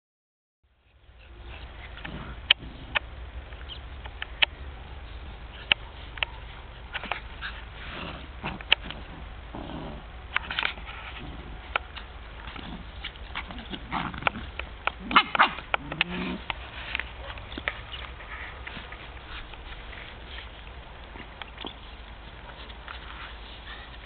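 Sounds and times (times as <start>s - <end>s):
dogs growling and grunting: 1.6s - 3.1s, 6.8s - 20.3s.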